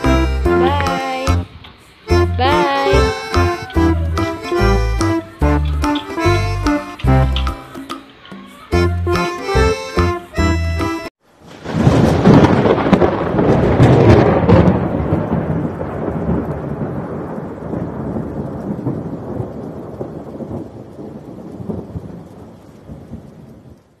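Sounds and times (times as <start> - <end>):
rain: 0.0 - 10.5, 11.2 - 24.0
thunder crash and rumble: 11.4 - 23.9.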